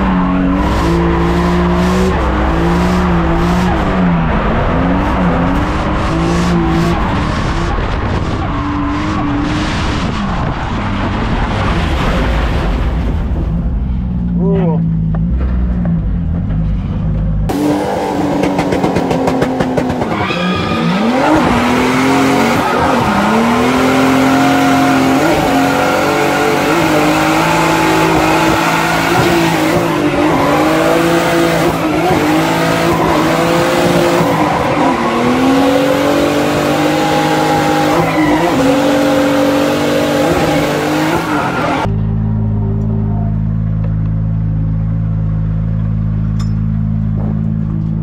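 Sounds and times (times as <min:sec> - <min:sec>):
car engine revving hard: 0:00.0 - 0:12.2, 0:17.5 - 0:41.9
road noise: 0:00.0 - 0:48.0
tyre squeal: 0:19.9 - 0:21.6.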